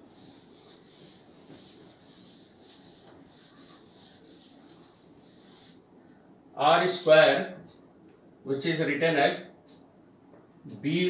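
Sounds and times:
rubbing on a chalkboard: 0:00.0 - 0:05.8.

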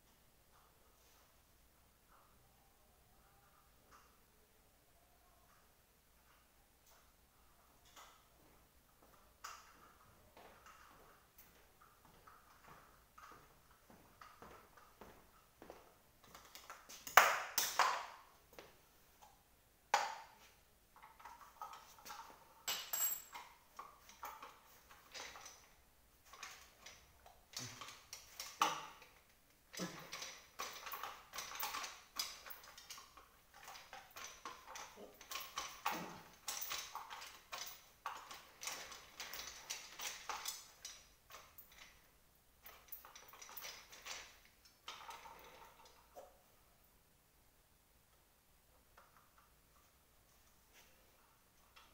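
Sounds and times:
metallic clinks of hand tools: 0:22.6 - 0:23.4.

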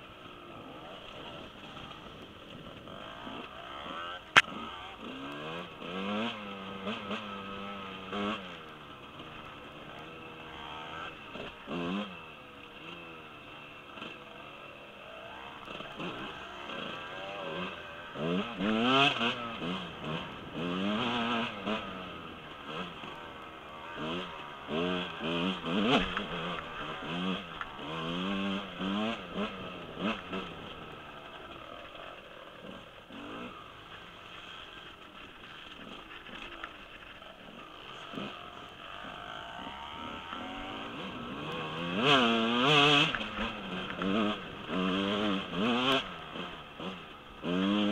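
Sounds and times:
dirt bike engine revving: 0:00.0 - 0:47.9.

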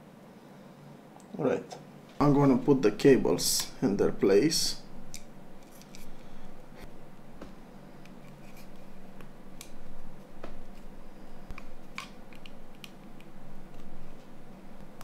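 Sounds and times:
small clicks and scrapes of hands: 0:05.2 - 0:06.2, 0:08.0 - 0:08.8, 0:11.5 - 0:14.2.

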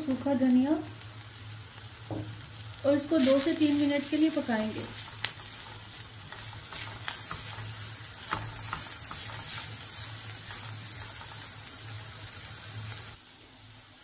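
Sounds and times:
onions sizzling in oil: 0:00.0 - 0:14.0
spatula scraping a pan: 0:04.6 - 0:12.2.

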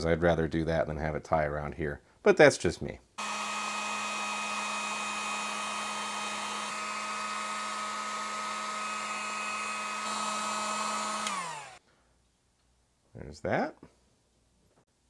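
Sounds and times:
heat gun fan whine and hiss: 0:03.2 - 0:11.8.

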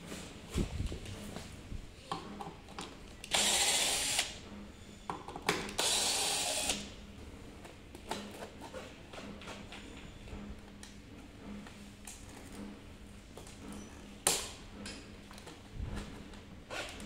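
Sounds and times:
cordless drill running: 0:03.2 - 0:04.4, 0:05.8 - 0:06.9.

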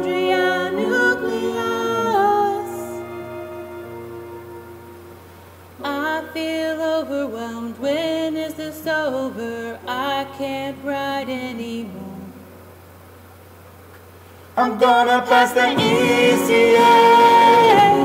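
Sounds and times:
held music chord: 0:00.0 - 0:06.0
person singing long wavering notes: 0:00.0 - 0:07.1.

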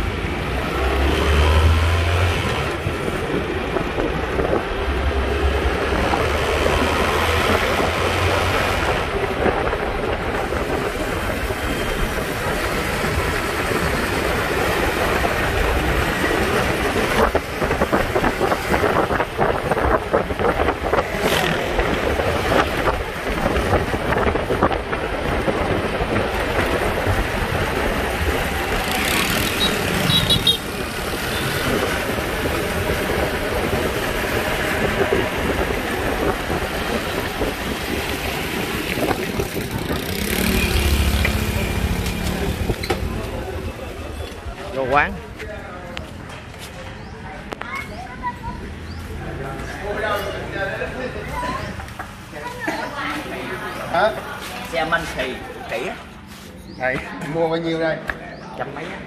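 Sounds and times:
road and wind noise: 0:00.0 - 0:59.0
small motorcycle engines: 0:04.4 - 0:45.1.

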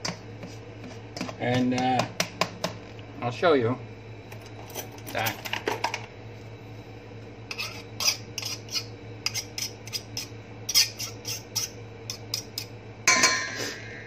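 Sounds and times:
fork scraping a mixing bowl: 0:07.5 - 0:12.7.

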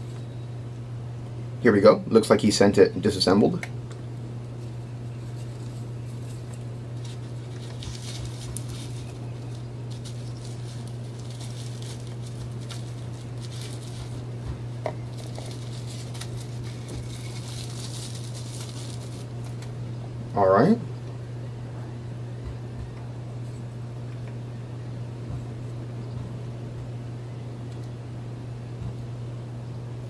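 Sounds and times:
steady low hum: 0:00.0 - 0:30.0
faint rustling: 0:04.6 - 0:19.7.

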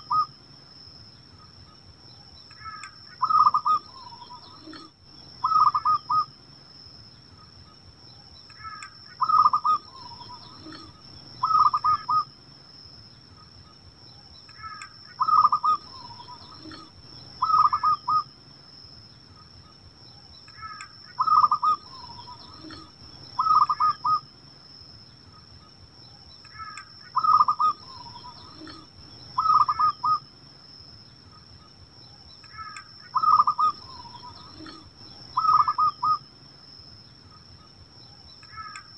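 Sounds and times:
dove cooing: 0:00.0 - 0:00.3, 0:02.6 - 0:06.3, 0:08.6 - 0:12.3, 0:14.6 - 0:18.3, 0:20.6 - 0:24.2, 0:26.6 - 0:30.2, 0:32.5 - 0:36.2
answering pulsed bird calls: 0:00.0 - 0:38.9.

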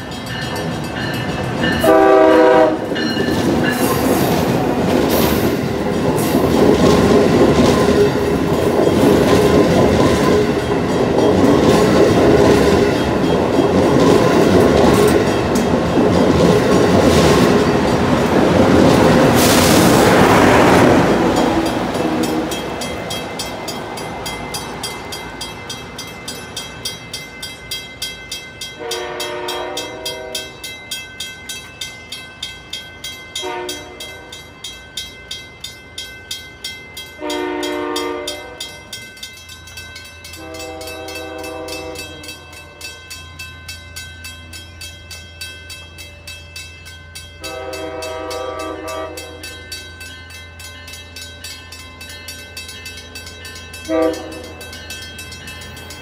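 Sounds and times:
crossing bell ringing: 0:00.0 - 0:56.0
train rumble: 0:00.0 - 0:56.0
train horn blasts: 0:01.8 - 0:03.0, 0:28.8 - 0:30.6, 0:33.4 - 0:34.3, 0:37.2 - 0:38.7, 0:40.4 - 0:42.4, 0:47.4 - 0:49.6, 0:53.8 - 0:54.6.

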